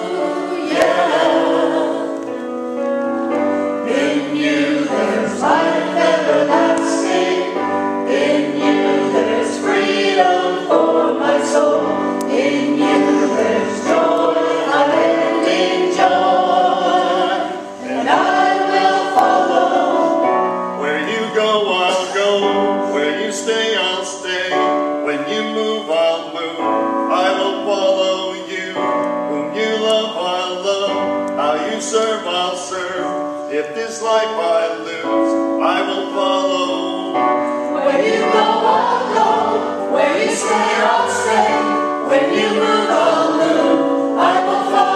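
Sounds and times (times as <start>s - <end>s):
group singing: 0.0s - 2.4s, 3.8s - 24.5s, 37.5s - 44.9s
instrumental accompaniment: 0.0s - 44.9s.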